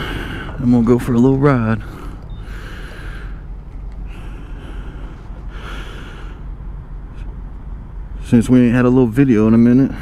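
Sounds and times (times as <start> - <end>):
steady low rumble: 0.0 - 10.0
person breathing softly: 1.8 - 6.6.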